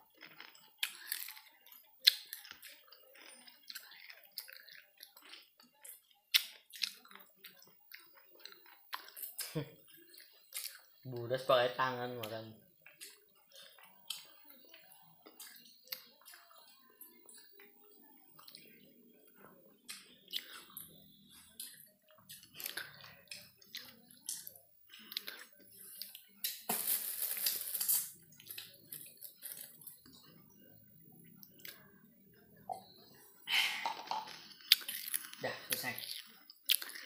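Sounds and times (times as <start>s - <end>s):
chewing: 0.0s - 11.2s, 12.2s - 37.0s
leaf wrapper rustling: 26.7s - 29.9s.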